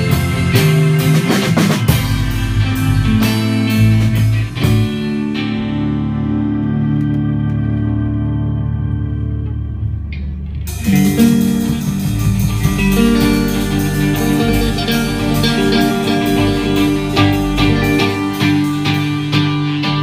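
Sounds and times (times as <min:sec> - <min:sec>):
band playing loud: 0:00.0 - 0:08.1, 0:10.4 - 0:20.0
organ-like chord: 0:00.0 - 0:19.9
guitar: 0:00.0 - 0:20.0.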